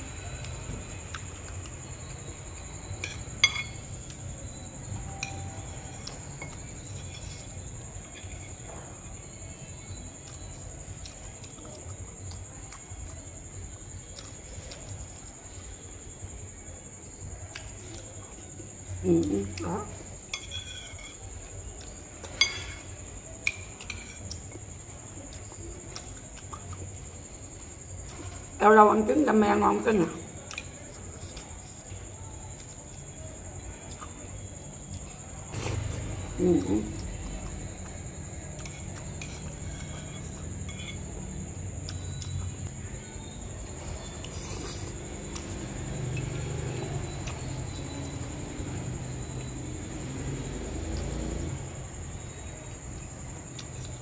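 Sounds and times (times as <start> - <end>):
faint high-pitched whine: 0.0 - 54.0
metal spoon clinking against bowl: 3.0 - 3.9.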